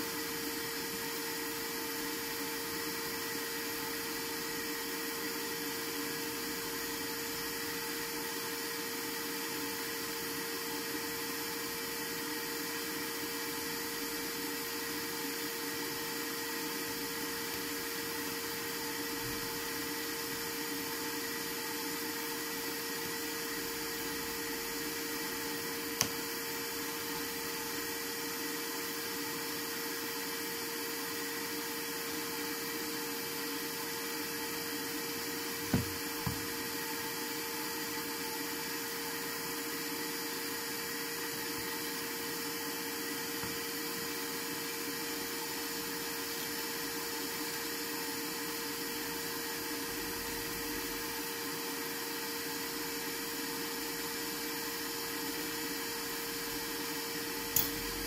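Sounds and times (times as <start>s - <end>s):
steady motor hum and hiss: 0.0s - 58.0s
short click: 57.6s - 57.9s.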